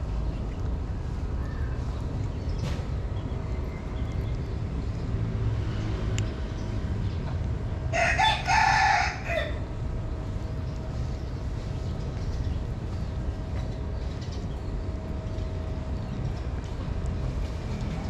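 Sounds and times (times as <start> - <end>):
low background rumble: 6.2 - 18.0
rooster crowing: 7.9 - 9.7.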